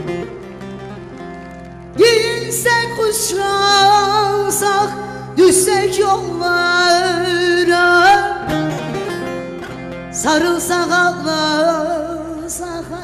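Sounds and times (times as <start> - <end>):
instrumental backing music: 0.0 - 13.0
woman singing into a microphone: 1.9 - 9.3, 10.1 - 13.0.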